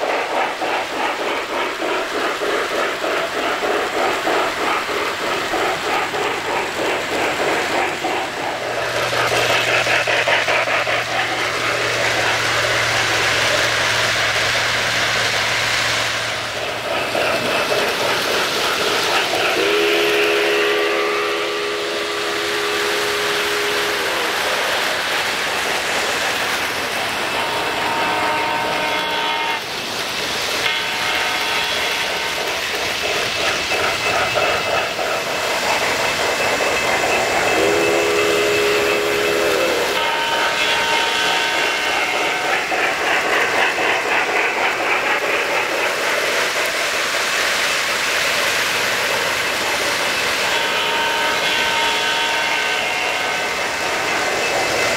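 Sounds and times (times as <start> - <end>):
model trains rumbling and clattering: 0.0 - 54.9
train whistle chord: 19.6 - 24.0, 27.4 - 29.6, 37.5 - 42.4, 50.6 - 53.5.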